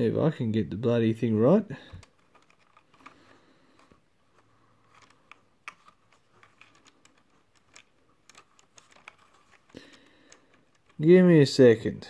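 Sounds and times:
clicks of plastic parts handled: 1.8 - 11.0.

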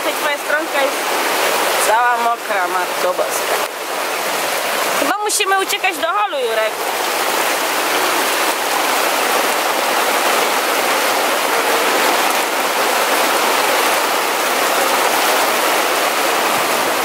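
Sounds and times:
heavy rain on a tarp: 0.0 - 17.0
water streaming off tarp: 0.0 - 17.0.

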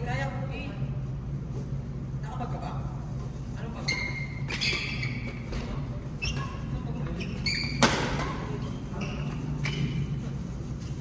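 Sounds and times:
shoes squeaking on court floor: 3.6 - 11.0.

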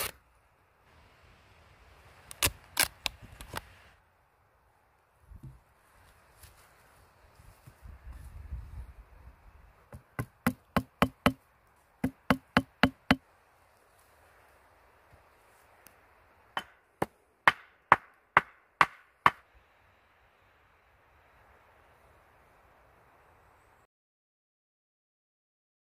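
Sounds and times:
wooden wedge knocking on wood: 9.9 - 11.4, 12.0 - 13.2.

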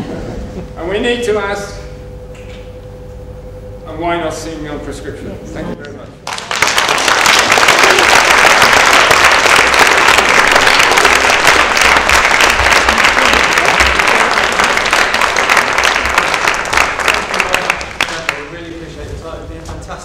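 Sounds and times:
audience applauding: 6.2 - 18.7.

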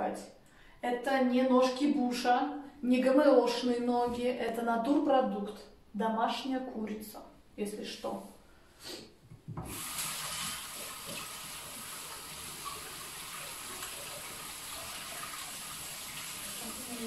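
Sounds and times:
water running into steel sink: 9.6 - 17.0.

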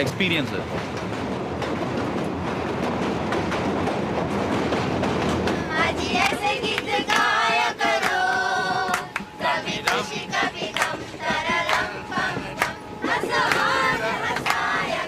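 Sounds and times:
group of voices singing: 5.5 - 15.0.

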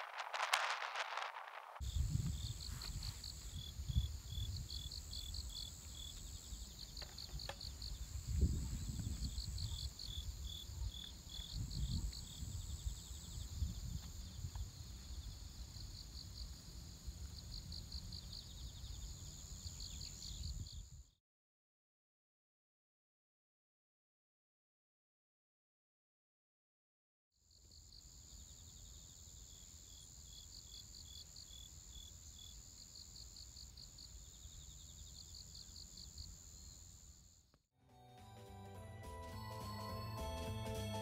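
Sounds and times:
wind rumble on microphone: 0.0 - 5.5, 7.4 - 15.8
insects chirping in trills: 0.0 - 21.2, 27.5 - 37.5.

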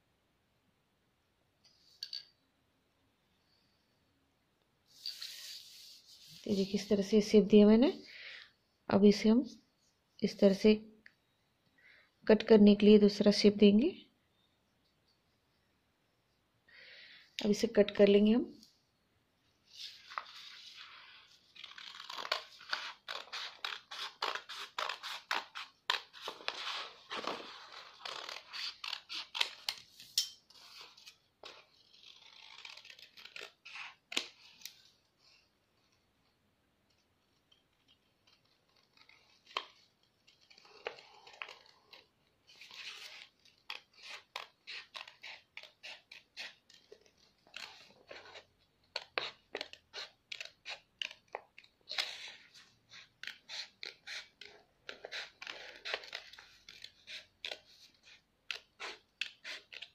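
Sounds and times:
paper rustling: 19.7 - 34.6
scissors snipping paper: 21.6 - 29.8, 37.3 - 59.9.

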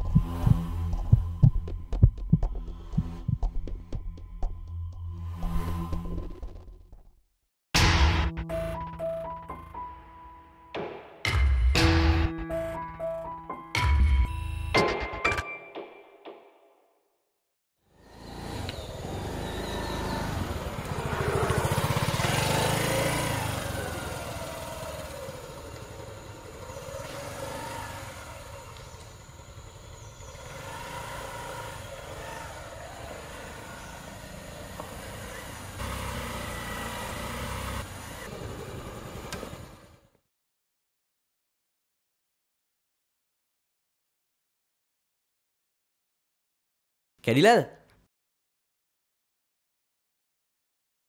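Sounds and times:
motor scooter engine running: 0.0 - 4.0, 18.0 - 40.1.

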